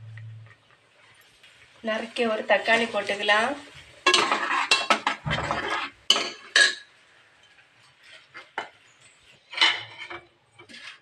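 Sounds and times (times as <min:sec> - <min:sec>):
metal spoon scraping a pot: 0:04.0 - 0:06.9, 0:09.4 - 0:11.0.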